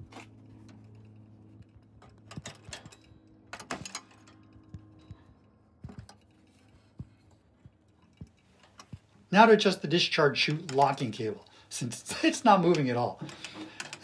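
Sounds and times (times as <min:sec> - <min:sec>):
faint low hum: 0:00.0 - 0:14.0
metallic clicks and knocks: 0:00.6 - 0:09.1, 0:12.7 - 0:14.0.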